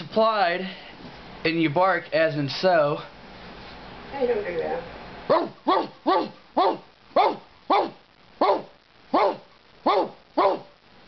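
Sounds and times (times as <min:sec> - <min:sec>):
man imitating dog barking: 0:05.3 - 0:10.8.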